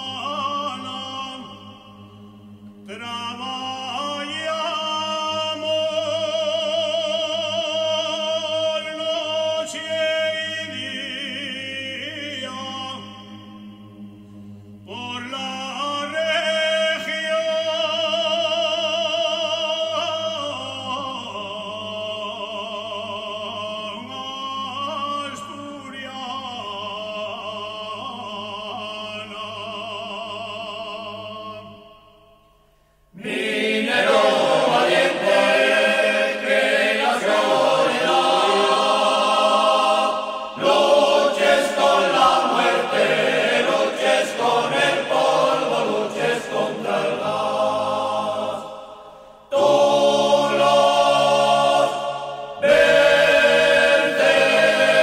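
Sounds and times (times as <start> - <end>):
choir singing: 0.0 - 31.9, 33.1 - 55.0
voices singing long notes: 33.1 - 55.0.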